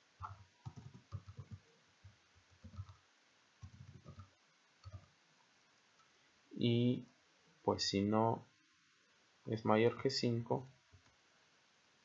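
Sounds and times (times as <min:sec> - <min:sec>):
faint keyboard typing: 0:00.2 - 0:05.2, 0:09.9 - 0:11.2.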